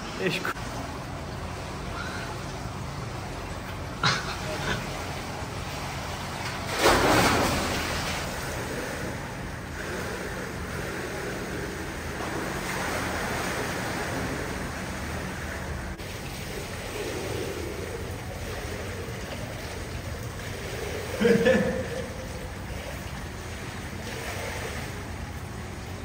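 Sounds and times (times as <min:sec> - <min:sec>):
rushing water: 0:00.0 - 0:26.0
loud splash: 0:06.6 - 0:25.2.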